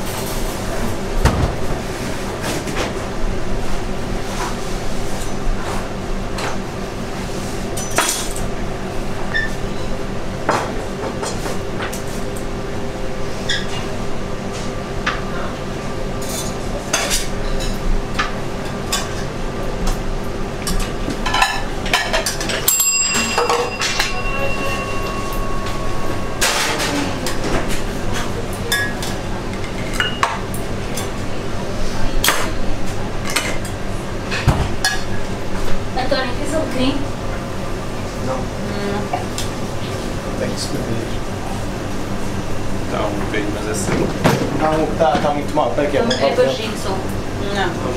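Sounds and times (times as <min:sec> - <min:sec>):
machine hum: 0:00.0 - 0:47.9
plates and utensils clinking: 0:20.7 - 0:31.1
electronic tone: 0:22.9 - 0:27.6.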